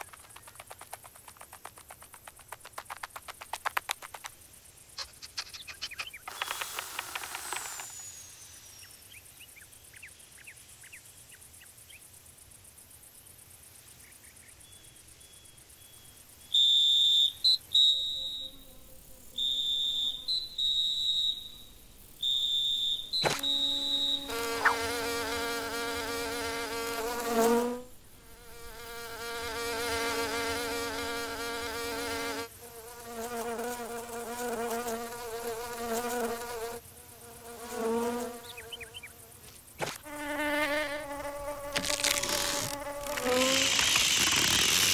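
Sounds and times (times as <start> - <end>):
cartoon insect wings buzzing: 5.0 - 8.0, 23.2 - 36.8, 39.8 - 44.9
high-pitched whistling tone: 16.6 - 18.8, 19.4 - 24.8.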